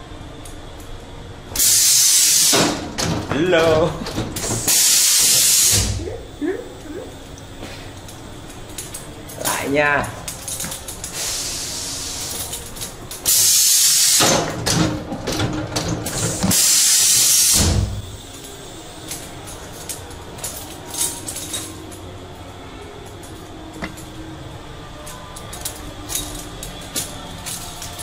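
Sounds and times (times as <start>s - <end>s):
loud bursts of hissing: 1.5s - 2.9s, 4.4s - 6.3s, 11.0s - 12.6s, 13.2s - 14.5s, 16.1s - 19.1s.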